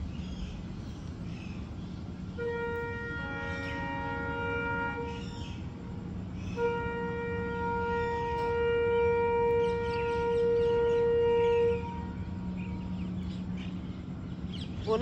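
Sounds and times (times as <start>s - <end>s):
long horn note: 2.3s - 5.4s, 6.4s - 13.2s.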